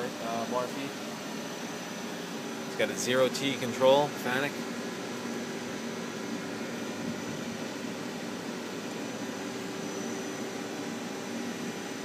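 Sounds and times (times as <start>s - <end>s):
machine hum and hiss: 0.0s - 12.0s
faint high whine: 5.9s - 12.0s.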